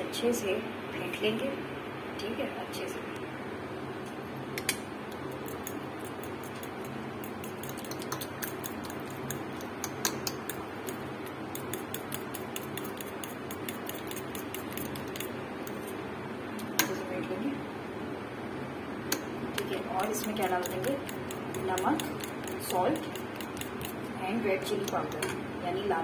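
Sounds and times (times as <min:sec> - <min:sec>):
fork clicking against bowl: 0:04.6 - 0:15.8, 0:19.1 - 0:24.0, 0:24.7 - 0:25.3.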